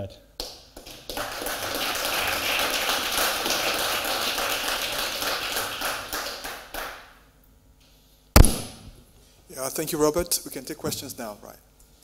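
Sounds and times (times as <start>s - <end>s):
audience applauding: 0.8s - 7.1s.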